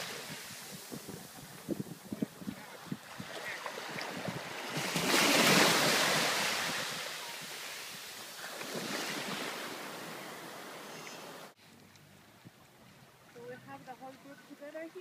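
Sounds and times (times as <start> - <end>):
wind on microphone: 0.0 - 10.2
wave breaking on shore: 0.0 - 11.5.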